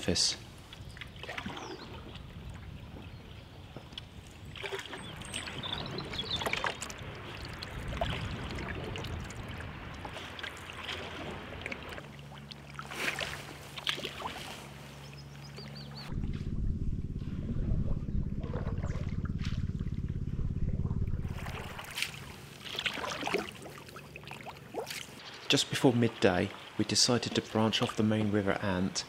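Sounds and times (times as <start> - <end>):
water lapping at hull: 0.4 - 16.1, 18.4 - 29.0
paddle splashes: 0.7 - 15.8, 21.3 - 28.0
steady low hum: 11.4 - 25.4.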